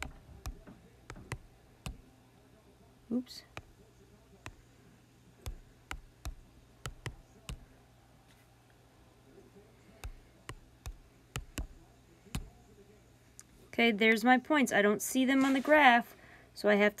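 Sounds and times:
fingertip taps on touchscreen: 0.0 - 2.1, 3.5 - 3.8, 4.4 - 4.6, 5.5 - 7.7, 10.0 - 12.6.

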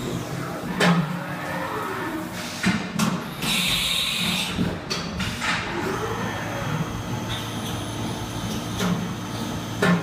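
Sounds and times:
milling machine running: 5.7 - 9.9.

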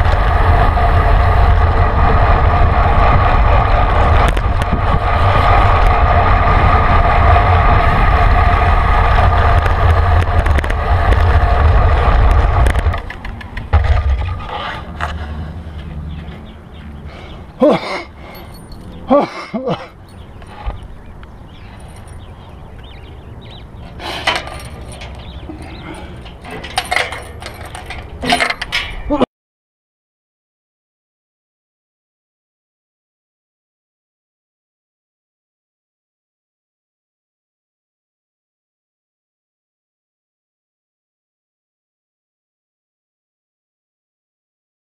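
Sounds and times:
wind buffeting microphone: 0.0 - 17.6, 20.0 - 29.1
road noise: 0.0 - 29.2
constant hum: 0.0 - 29.3
keys jingling: 18.2 - 19.1, 21.5 - 22.5, 24.0 - 29.1
padlock clinking against metal gate: 18.2 - 19.1, 20.0 - 20.7, 21.6 - 22.9, 24.0 - 29.1.

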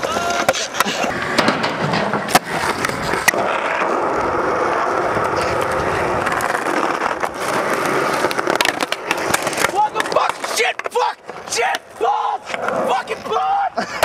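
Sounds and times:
skateboard clacks: 0.0 - 14.0
skateboard wheels rolling on asphalt: 0.0 - 14.0.

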